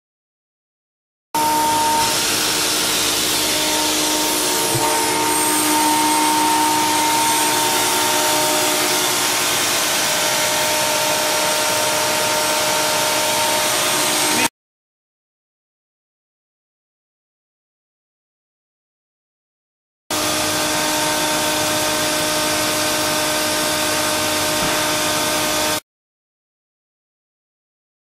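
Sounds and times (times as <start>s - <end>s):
air compressor running: 1.4s - 14.5s, 20.1s - 25.8s.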